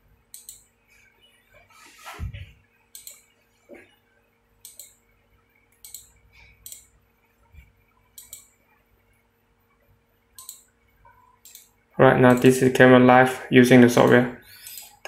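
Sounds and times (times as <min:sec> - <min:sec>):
computer mouse clicks: 0:00.3 - 0:00.7, 0:02.9 - 0:03.2, 0:04.6 - 0:05.0, 0:05.7 - 0:06.9, 0:08.2 - 0:08.5, 0:10.4 - 0:11.7, 0:14.6 - 0:15.0.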